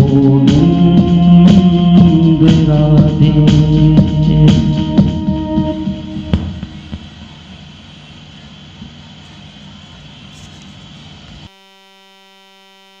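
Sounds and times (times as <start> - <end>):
buzzing tone: 0.0 - 7.9, 11.5 - 13.0
background hiss and rumble: 0.0 - 11.5.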